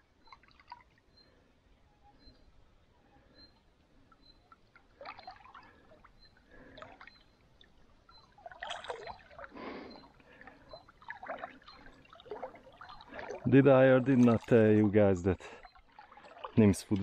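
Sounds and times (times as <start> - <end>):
fish splashing in water: 5.0 - 5.8, 8.2 - 13.5.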